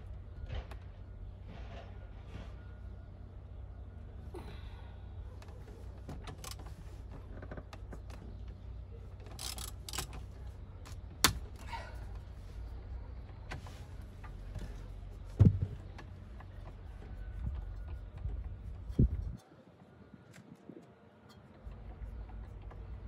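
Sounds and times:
dull thump: 0:15.4 - 0:15.8.

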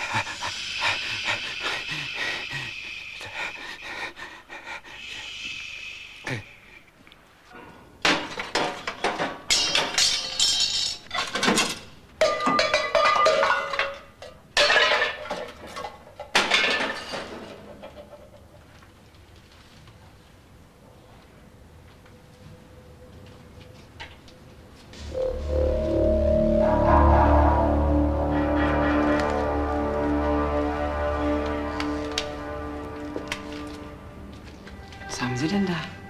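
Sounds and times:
man panting breaths: 0:00.0 - 0:06.9
objects clattering and knocking: 0:08.0 - 0:18.8.

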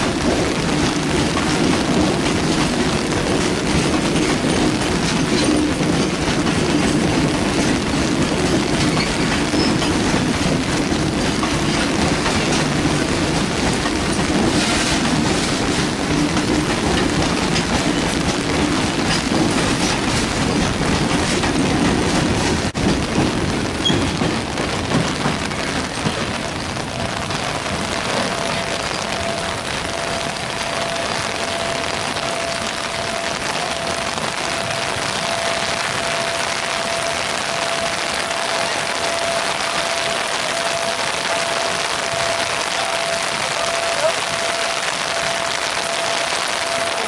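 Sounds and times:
freight wagons rumbling past: 0:00.0 - 0:47.0
heavy rain pouring: 0:00.0 - 0:47.0.

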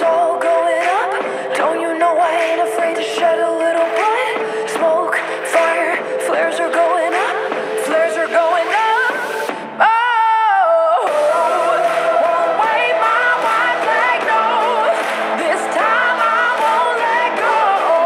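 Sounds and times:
pop song with lead singer: 0:00.0 - 0:18.0.

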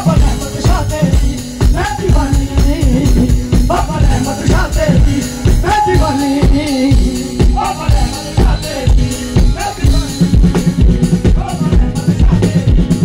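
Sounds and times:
person singing through loudspeakers: 0:00.0 - 0:13.0
steady drum beat: 0:00.0 - 0:13.0.

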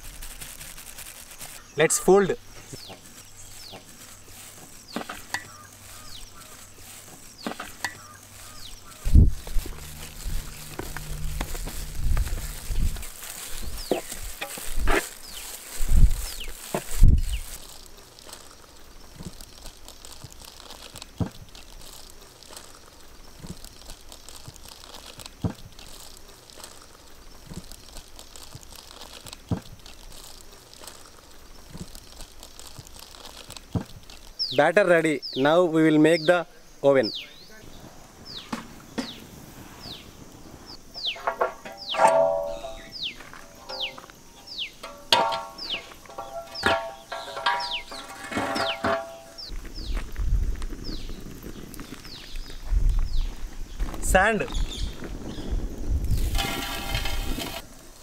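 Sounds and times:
bird chirps: 0:02.6 - 0:14.3, 0:37.0 - 0:40.1, 0:40.7 - 0:50.0
faint high hiss: 0:34.4 - 0:48.0
spatula scraping batter in metal pot: 0:56.2 - 0:57.6.

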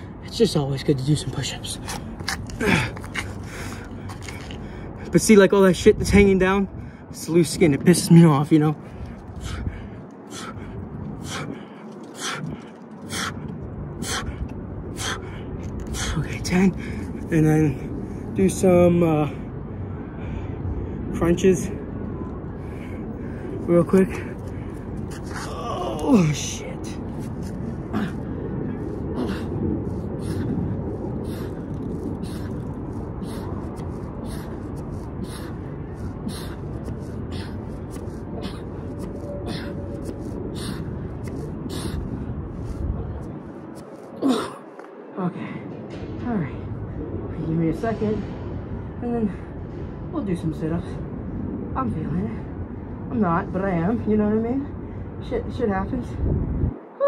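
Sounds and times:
low rumble: 0:00.0 - 0:55.2
man breathing hard: 0:08.8 - 0:17.2, 0:27.5 - 0:42.9.

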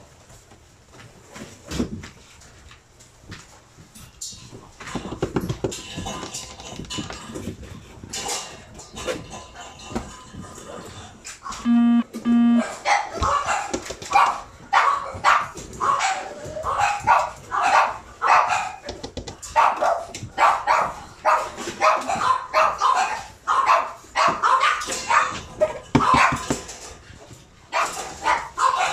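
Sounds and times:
puppy barking: 0:11.5 - 0:18.9, 0:19.5 - 0:26.6, 0:27.7 - 0:28.9.

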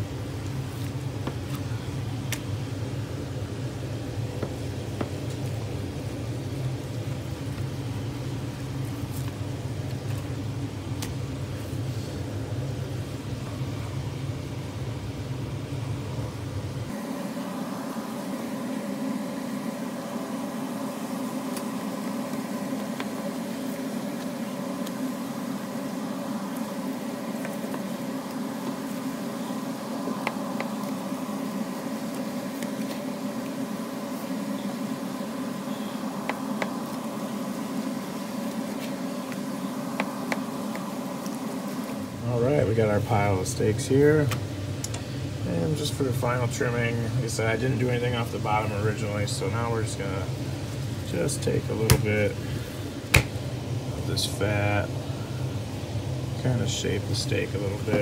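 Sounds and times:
steady mechanical hum: 0:00.0 - 0:58.0.

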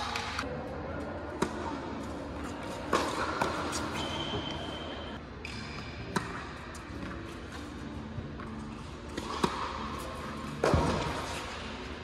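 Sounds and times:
shoes squeaking on hard court: 0:02.1 - 0:12.0
tennis racket hitting ball: 0:02.5 - 0:04.8, 0:05.8 - 0:07.7, 0:09.1 - 0:11.8.

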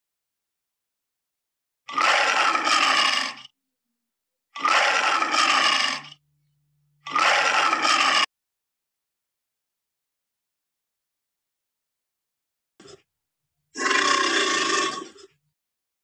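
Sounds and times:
lion roaring: 0:01.9 - 0:03.5, 0:04.6 - 0:06.2, 0:07.0 - 0:08.3, 0:13.8 - 0:15.4.

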